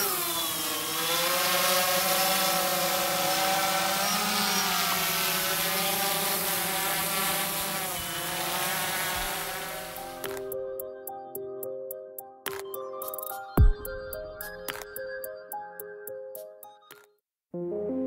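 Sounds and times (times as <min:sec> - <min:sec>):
drone motors buzzing: 0:00.0 - 0:10.5.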